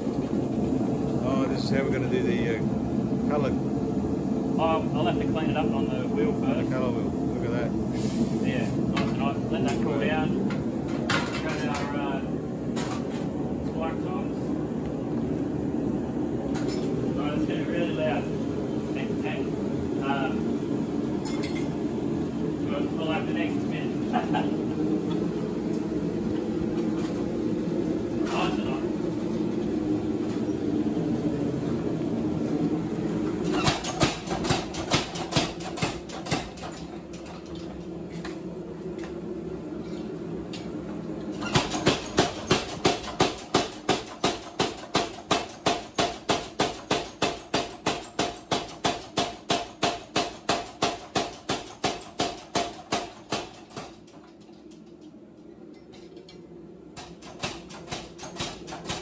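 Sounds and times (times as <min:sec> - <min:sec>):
power hammer pounding: 0:33.6 - 0:36.8, 0:41.4 - 0:54.0, 0:57.0 - 0:59.0.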